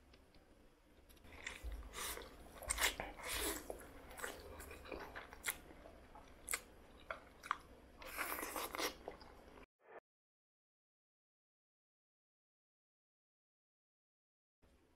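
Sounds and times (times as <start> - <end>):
man slurping and chewing noodles: 1.2 - 9.7.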